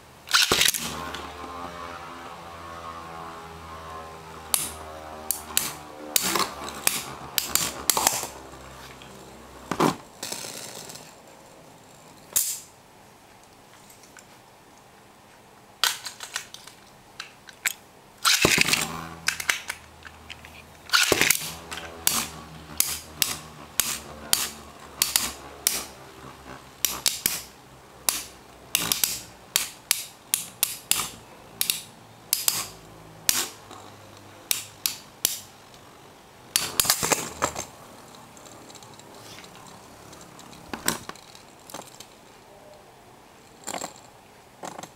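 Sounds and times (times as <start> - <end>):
spinning tops whirring: 0.2 - 11.2, 18.2 - 33.9.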